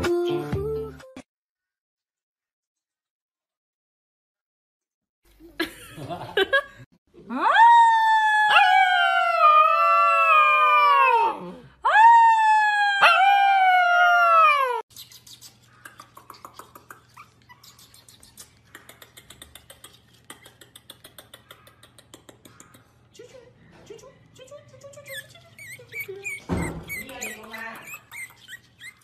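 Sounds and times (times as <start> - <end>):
puppy howling: 7.3 - 14.8.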